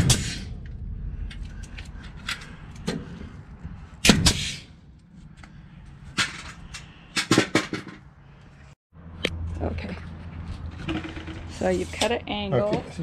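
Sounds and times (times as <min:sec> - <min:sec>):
nail gun shot: 0:00.0 - 0:00.5, 0:04.0 - 0:04.6.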